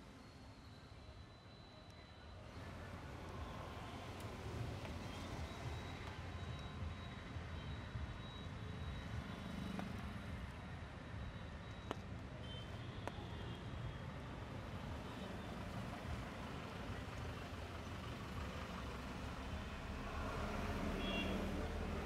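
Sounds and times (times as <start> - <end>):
traffic passing on wet road: 2.5 - 10.9, 14.0 - 22.0.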